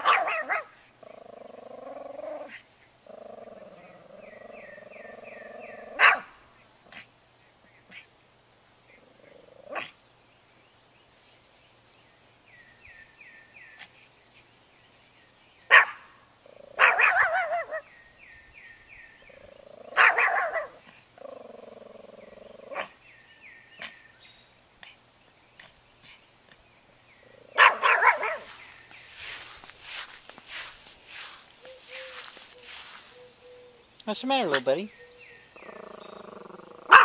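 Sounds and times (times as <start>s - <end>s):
small dog barking: 0.0s - 0.8s, 5.8s - 7.1s, 9.7s - 10.0s, 15.7s - 17.9s, 19.9s - 20.8s, 22.6s - 23.0s, 27.6s - 28.6s, 36.8s - 37.0s.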